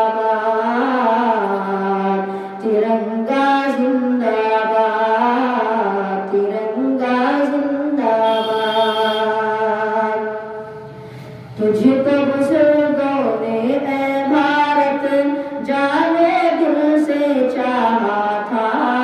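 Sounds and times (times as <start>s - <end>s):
boy singing into a microphone: 0.0s - 19.0s
breaths between phrases: 2.3s - 2.6s, 10.8s - 11.6s, 15.4s - 15.6s.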